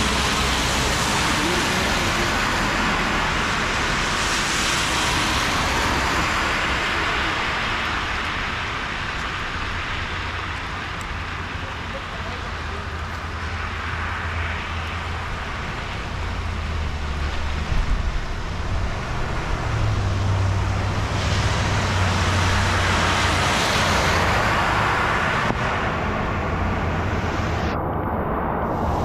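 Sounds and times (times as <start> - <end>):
tyres hissing through water: 0.0 - 8.4
low traffic rumble: 0.0 - 29.0.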